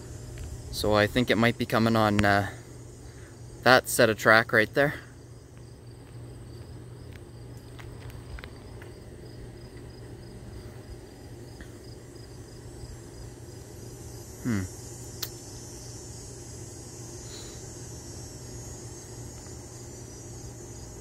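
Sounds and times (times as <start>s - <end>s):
crickets trilling: 0.0s - 21.0s
low background hum: 0.0s - 21.0s
sharp click: 15.2s - 15.4s.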